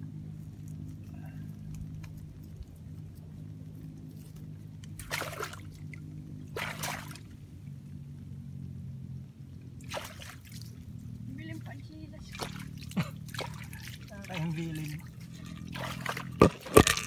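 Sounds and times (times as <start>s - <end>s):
steady low hum: 0.0s - 17.0s
hands squelching in wet mud: 4.0s - 7.3s, 9.8s - 10.8s, 12.2s - 17.0s.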